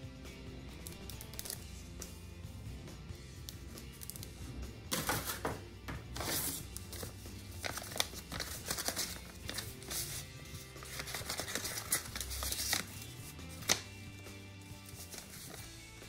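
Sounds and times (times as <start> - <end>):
background music: 0.0 - 16.0
packaging rustling and crinkling: 6.2 - 12.9.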